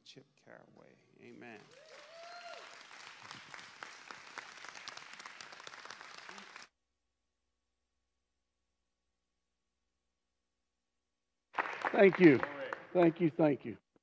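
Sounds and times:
crowd clapping: 1.4 - 6.7, 11.6 - 13.7.

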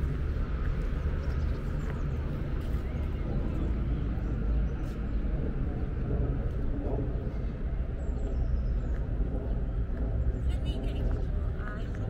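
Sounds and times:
distant traffic rumble: 0.0 - 12.0
faint voices: 9.2 - 12.0.

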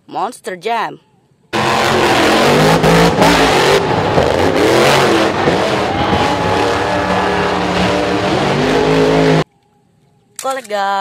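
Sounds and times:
monster truck engine revving: 1.6 - 9.4.

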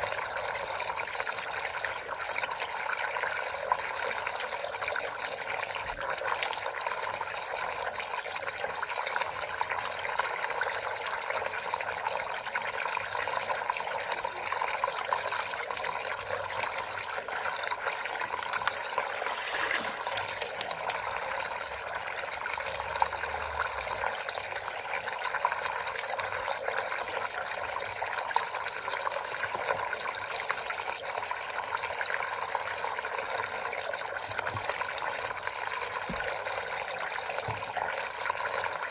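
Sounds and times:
water swirling and draining: 0.0 - 38.9.

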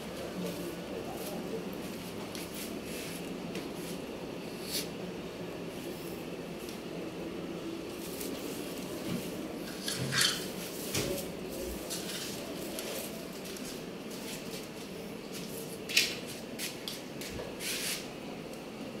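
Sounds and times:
steady background hum: 0.0 - 19.0
goats rustling in straw: 7.9 - 9.1.

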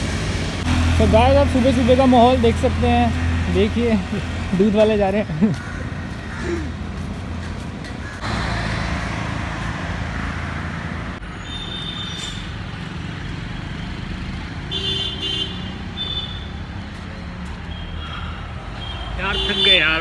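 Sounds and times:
vehicle passing: 0.0 - 11.4
road traffic: 0.0 - 20.0.

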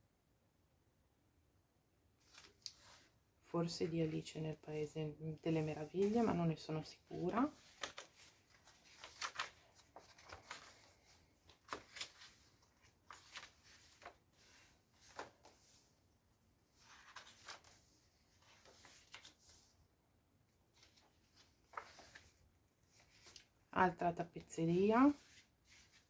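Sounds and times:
paper pages turning: 2.2 - 3.1, 5.4 - 15.9, 16.7 - 19.8, 20.7 - 23.6, 25.0 - 26.0
paper rustling and tapping: 7.1 - 15.6.

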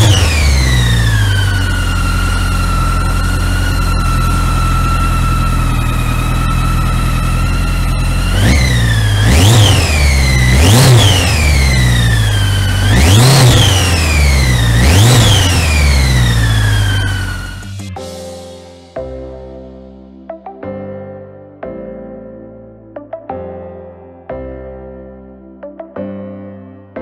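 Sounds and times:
motorcycle engine idling and revving: 0.0 - 18.2
high engine whine: 0.0 - 19.0.

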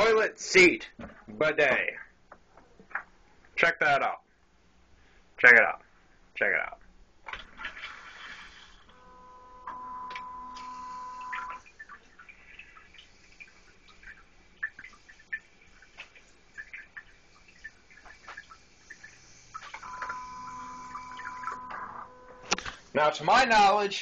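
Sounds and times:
water spraying into toilet bowl: 7.3 - 23.1
bidet motor whine: 8.9 - 11.6, 19.8 - 22.7.

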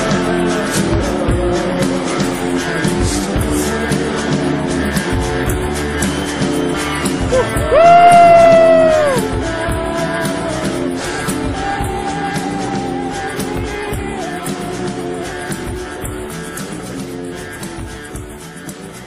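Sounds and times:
guitar background music: 0.0 - 19.0.

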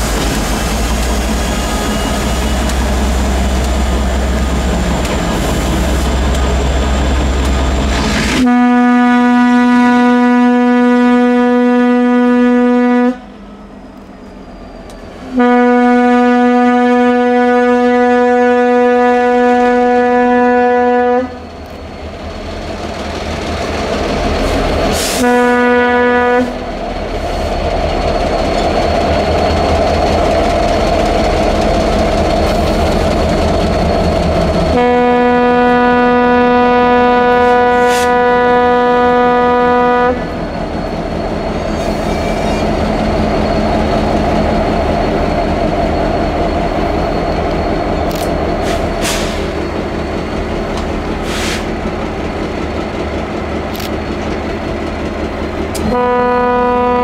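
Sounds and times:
heavy rumble of passing train: 0.0 - 57.0
locomotive air horn: 8.4 - 13.4, 15.2 - 21.4, 25.0 - 26.7, 34.7 - 40.4, 55.8 - 57.0.

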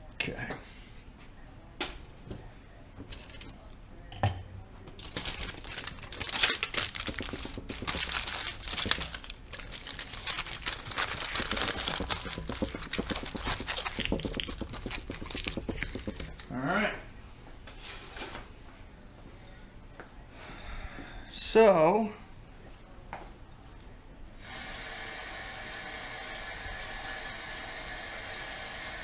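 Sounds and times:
aluminium foil crinkling: 5.0 - 16.5.

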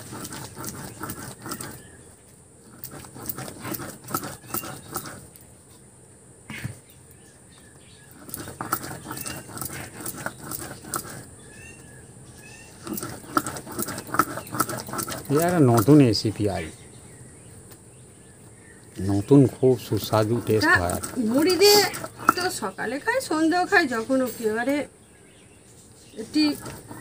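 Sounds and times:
stone scraping on stone: 0.0 - 2.0, 2.6 - 5.4, 8.1 - 11.3, 12.8 - 16.2, 19.8 - 23.4, 26.2 - 27.0.

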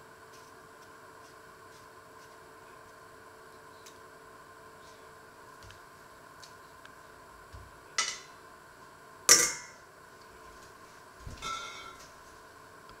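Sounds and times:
metal colander clanging: 8.0 - 8.3, 9.3 - 9.8, 11.4 - 12.0.

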